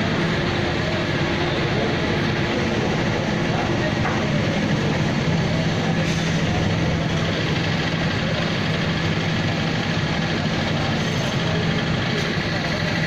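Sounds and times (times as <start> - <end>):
engine idling: 0.0 - 13.0.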